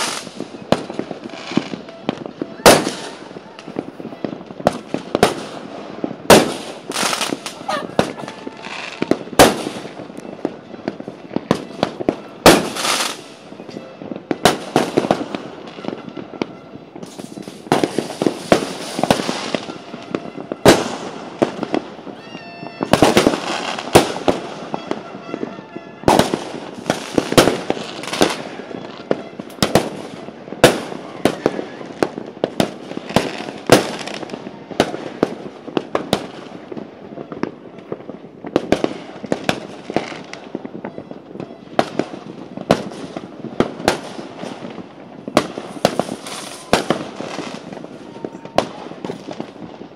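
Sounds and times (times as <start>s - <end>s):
distant fireworks crackle: 0.0s - 49.9s
fireworks bangs: 0.0s - 49.9s.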